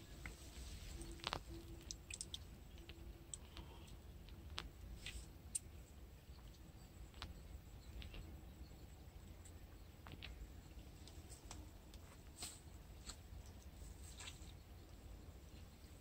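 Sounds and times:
low steady rumble: 0.0 - 16.0
small clicks from fishing line: 1.0 - 5.7.

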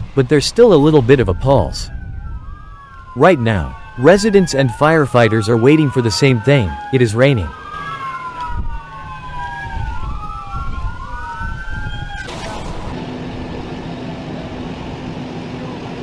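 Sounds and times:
rushing rumble with low hum: 0.0 - 3.2, 8.4 - 16.0
emergency sirens wailing: 0.0 - 16.0.

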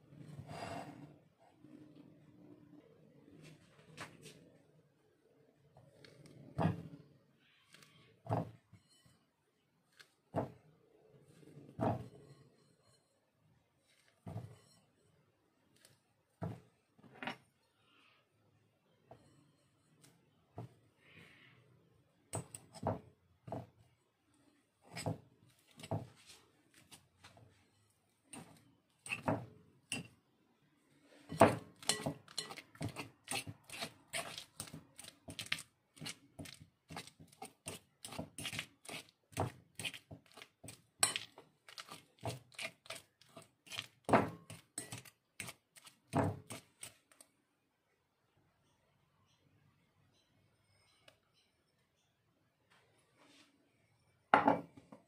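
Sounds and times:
fork clinking on glass bowl: 31.8 - 34.4, 41.0 - 41.3.

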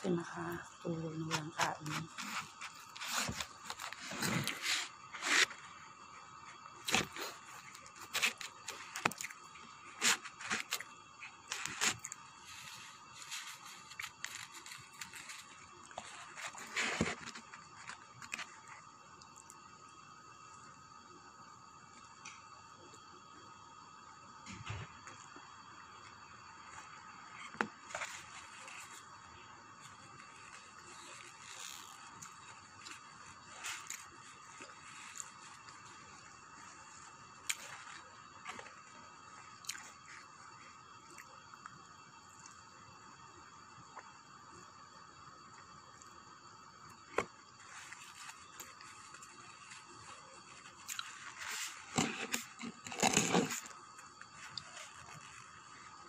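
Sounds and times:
steady electrical hum: 0.0 - 56.0
clicks and scrapes from eating: 6.8 - 10.9, 11.5 - 18.7, 47.1 - 56.0
food packaging crinkling: 6.8 - 18.4.

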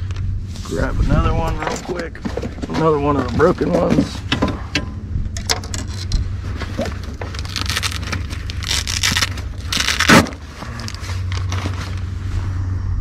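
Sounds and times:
low hum: 0.0 - 13.0
plastic bags crinkling: 6.6 - 12.0.

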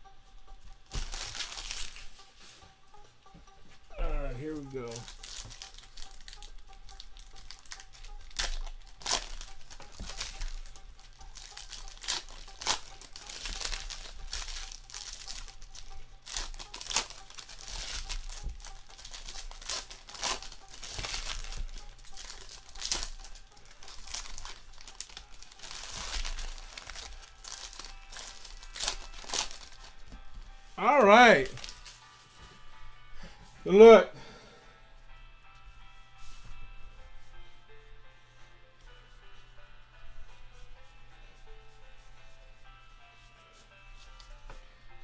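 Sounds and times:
foil wrappers tearing and crinkling: 0.9 - 2.6, 4.1 - 30.3, 31.3 - 32.1.

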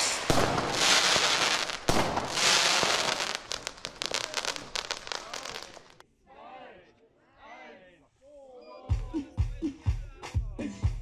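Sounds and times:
firework bang: 0.0 - 6.0
firework crackles: 0.0 - 6.0
firework hissing: 0.0 - 6.0.

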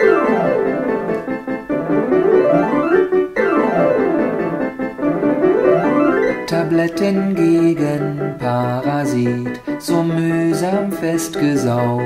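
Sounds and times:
solo piano arpeggios: 0.0 - 11.6.

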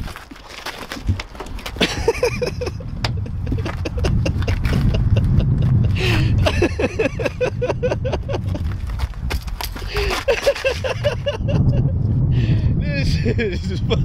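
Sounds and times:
scuffling knocks and scrapes: 0.0 - 6.0, 8.3 - 11.1
wind rumble on microphone: 0.9 - 14.0.

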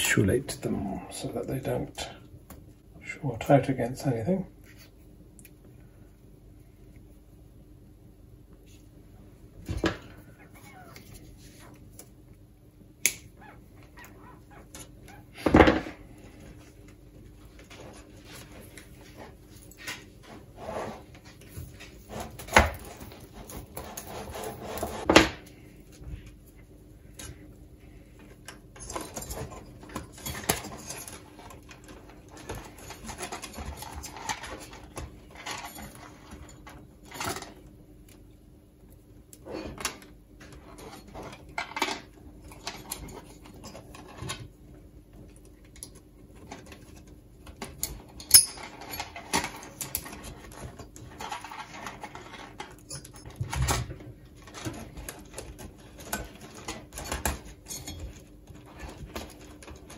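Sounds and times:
faint steady hum: 0.0 - 59.9
wires rustling and scraping: 16.0 - 38.2, 39.4 - 59.9.

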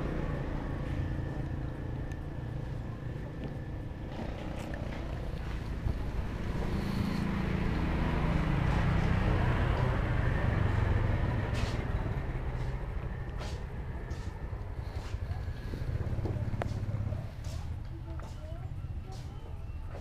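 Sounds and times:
vehicle engine hum passing: 0.0 - 20.0.

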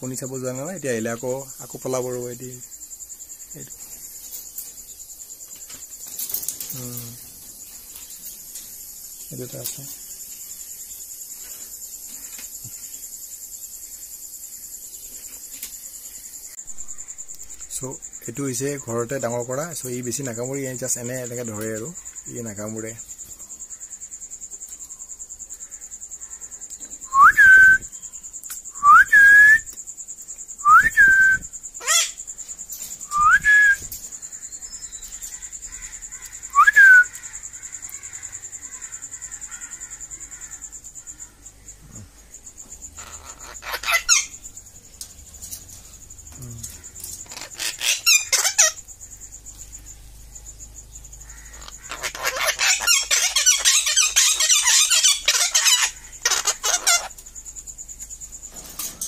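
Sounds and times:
short rising whistles: 27.1 - 27.9, 28.8 - 29.7, 30.6 - 31.5, 33.1 - 33.9, 36.5 - 37.1.

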